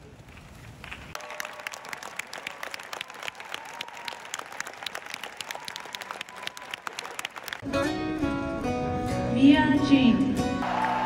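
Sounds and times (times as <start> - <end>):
crowd applauding: 0.8 - 7.7, 10.6 - 11.0.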